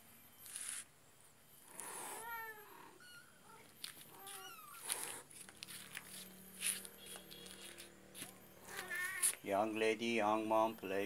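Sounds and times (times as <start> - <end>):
cats meowing: 1.8 - 5.3, 8.6 - 9.5
rustling: 3.7 - 9.5.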